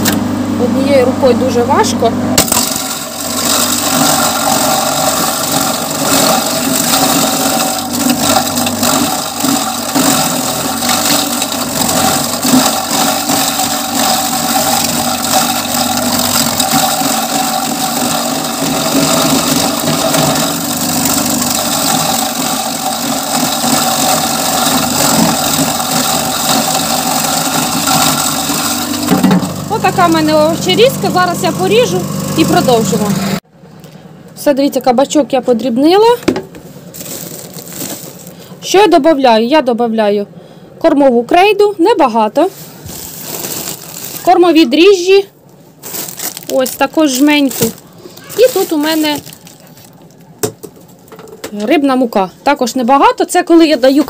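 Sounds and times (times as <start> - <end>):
electric shredder motor hum: 0.0 - 33.4
vegetable being shredded: 2.4 - 30.8, 36.9 - 38.4, 42.8 - 44.5, 45.8 - 50.3.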